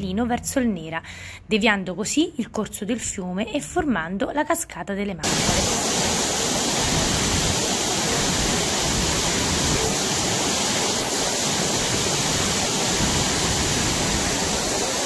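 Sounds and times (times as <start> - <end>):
waterfall rushing: 5.2 - 15.0.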